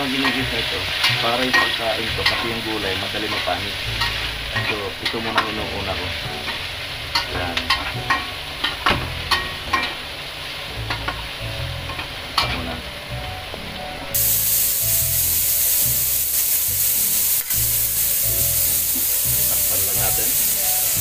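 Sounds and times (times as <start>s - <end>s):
vegetables sizzling in oil: 0.0s - 21.0s
metal spatula scraping wok: 0.1s - 5.5s.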